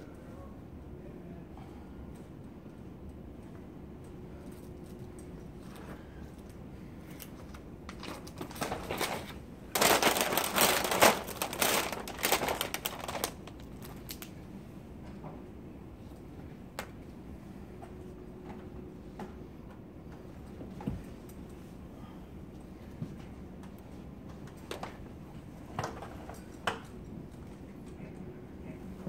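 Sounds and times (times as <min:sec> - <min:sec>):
loud crinkling and rustling: 0:07.1 - 0:14.4.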